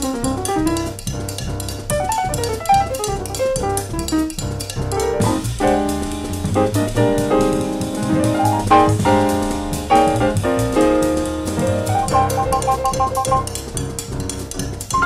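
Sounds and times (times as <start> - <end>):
bass: 0.0 - 15.0
drum kit with cymbals: 0.0 - 15.0
piano chords: 0.0 - 15.0.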